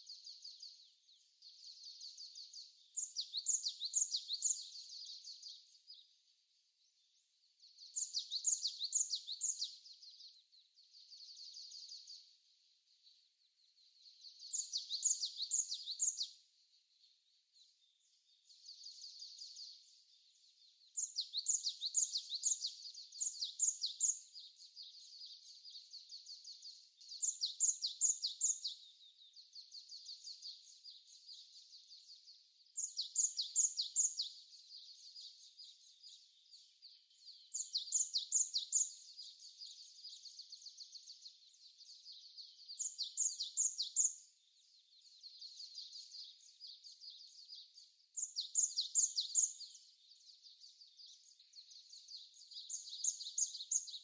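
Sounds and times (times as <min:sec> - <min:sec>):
faint bird twittering: 0:00.0 - 0:54.0.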